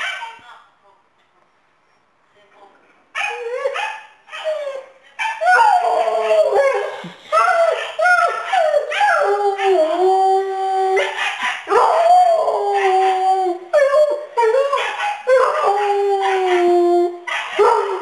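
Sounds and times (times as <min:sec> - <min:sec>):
dog yelping: 0:05.2 - 0:09.9, 0:14.4 - 0:16.6
dog howling: 0:05.4 - 0:18.0.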